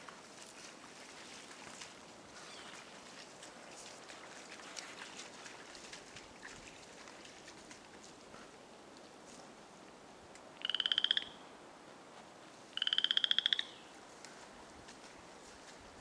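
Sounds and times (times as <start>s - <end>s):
frog creaking trills: 10.6s - 11.4s, 12.8s - 13.8s.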